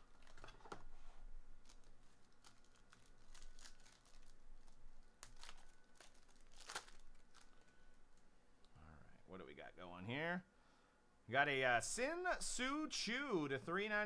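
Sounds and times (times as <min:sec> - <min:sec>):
foil wrapper tearing and crinkling: 0:01.6 - 0:07.7.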